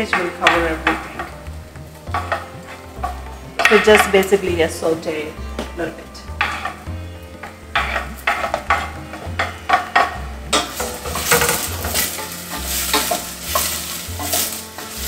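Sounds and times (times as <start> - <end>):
onion sizzling in oil: 0.0 - 15.0
wooden spoon scraping pan: 0.0 - 15.0.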